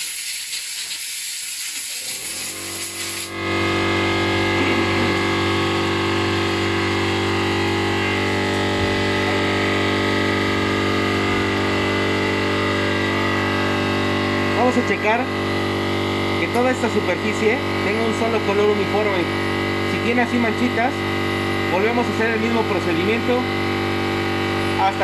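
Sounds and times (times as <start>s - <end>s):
air blow gun hissing: 0.0s - 3.4s
air compressor motor running: 0.0s - 25.0s.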